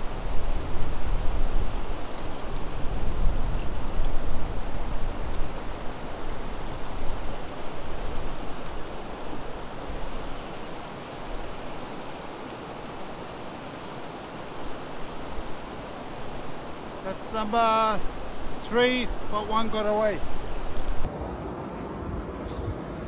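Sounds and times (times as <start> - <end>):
flowing river water: 0.0 - 23.0.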